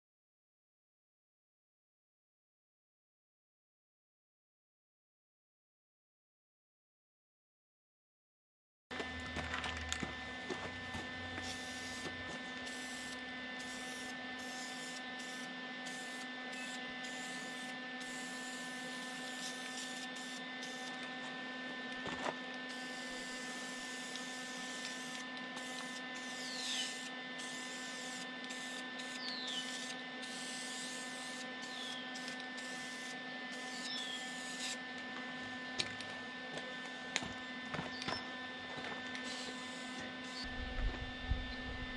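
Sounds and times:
welding machine electrical hum: 8.9s - 41.9s
spray paint can hissing: 11.4s - 21.0s, 22.7s - 34.8s.

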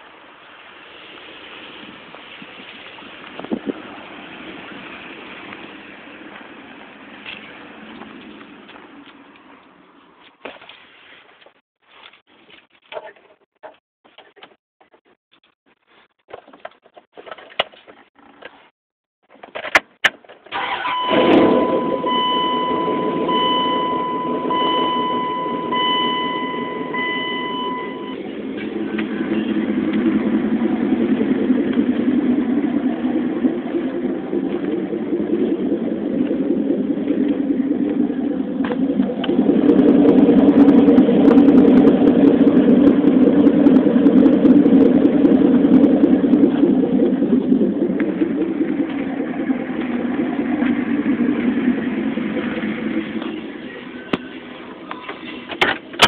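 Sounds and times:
engine cranking and idling: 19.2s - 56.0s
dashboard warning chime: 20.6s - 28.3s.

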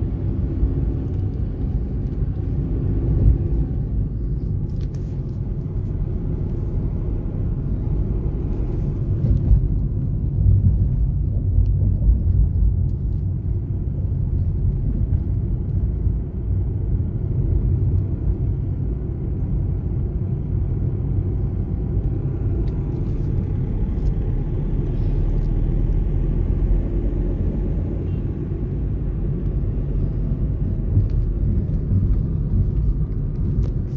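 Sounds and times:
car engine and tyre rumble: 0.0s - 33.9s.

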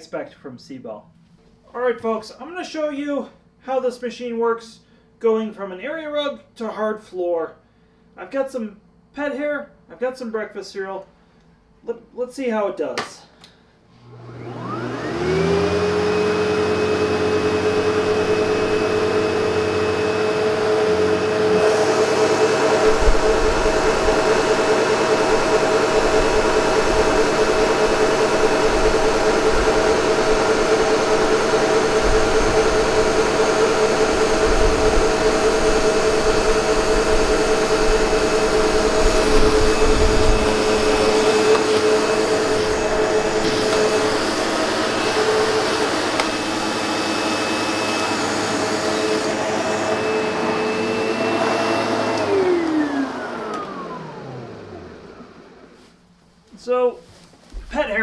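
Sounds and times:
vacuum cleaner motor whine: 13.9s - 55.9s
vacuum cleaner on tile floor: 13.9s - 55.9s.

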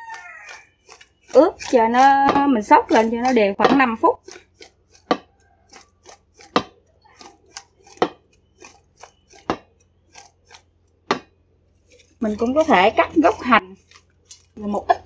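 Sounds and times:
food pieces knocking in metal bowl: 0.9s - 5.4s, 6.0s - 9.8s.

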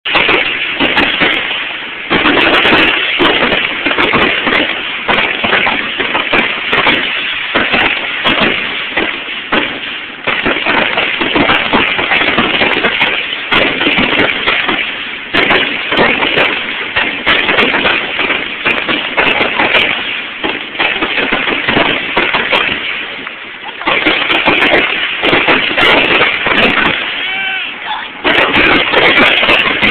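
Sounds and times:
fireworks booming and crackling: 0.0s - 29.9s.

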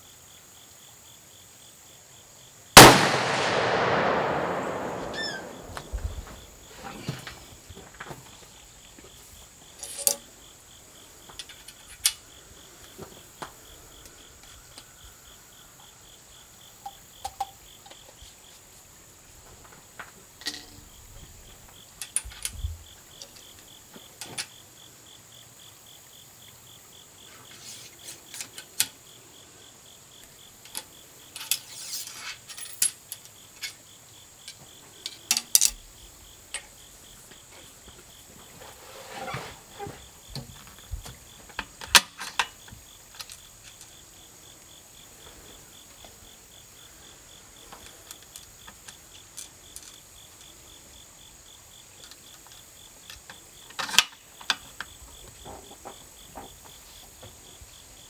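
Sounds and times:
crickets chirring: 0.0s - 58.0s
metal ramrod clicking in barrel: 9.8s - 10.2s.

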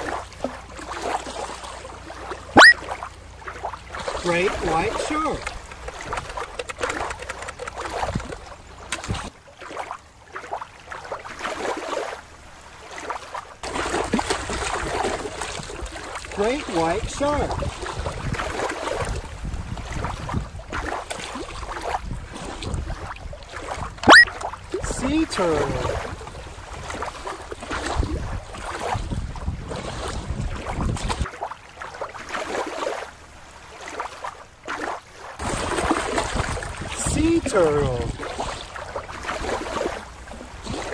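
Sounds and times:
water lapping over rocks: 0.0s - 40.9s
water splashes: 0.0s - 40.9s
wind buffeting microphone: 4.5s - 9.3s, 16.8s - 31.2s, 35.4s - 40.9s.

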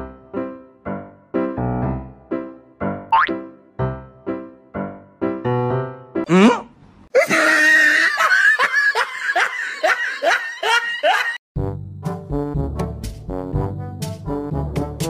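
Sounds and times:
music: 0.0s - 6.3s, 11.6s - 15.0s
comedy laugh: 7.2s - 11.4s.

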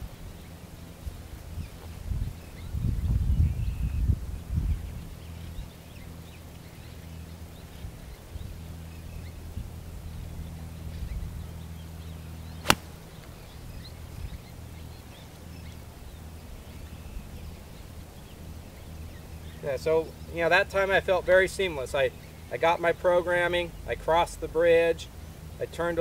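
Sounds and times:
golf club striking ball: 12.6s - 13.4s.

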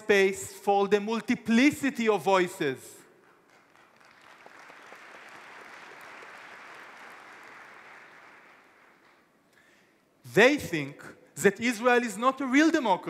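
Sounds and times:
speech: 0.0s - 3.0s, 10.2s - 13.0s
audience applause: 3.4s - 9.2s.

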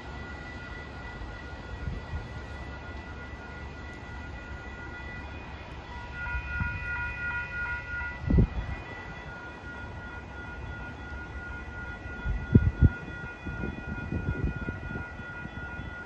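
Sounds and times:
distant train rumbling: 0.0s - 16.0s
pulsing ringing: 0.0s - 16.0s
steady high tones: 0.0s - 16.0s.

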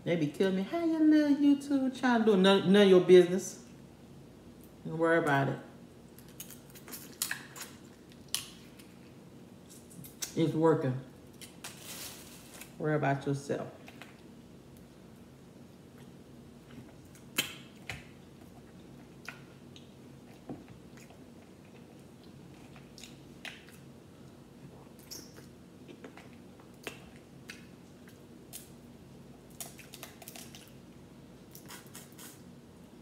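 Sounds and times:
faint steady hum: 0.0s - 33.0s
chewing: 15.9s - 28.7s, 29.5s - 30.8s.

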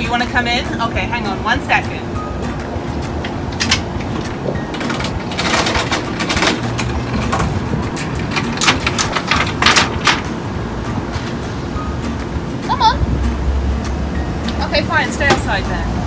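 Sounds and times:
steady background hum: 0.0s - 16.0s
steel chain clinking: 2.7s - 10.3s.

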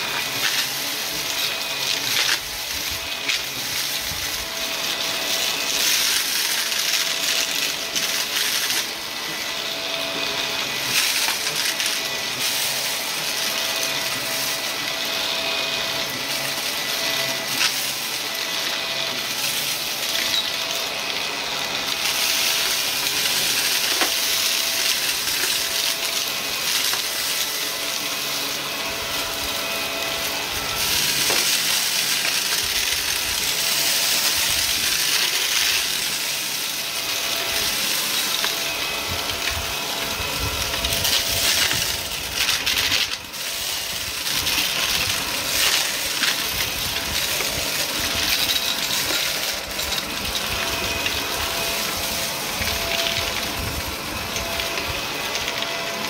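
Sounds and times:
vacuum cleaner running over carpet: 0.0s - 56.0s.

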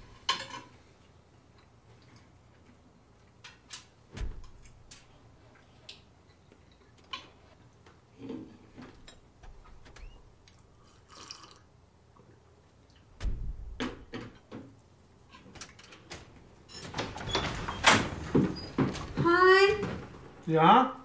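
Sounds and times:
dull thuds: 4.1s - 4.9s, 13.2s - 14.4s.

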